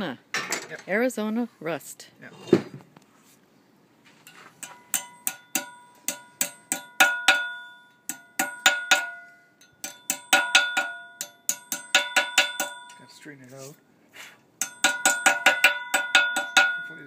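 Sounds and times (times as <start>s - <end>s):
hammer ringing on anvil: 4.6s - 13.3s, 14.6s - 17.0s.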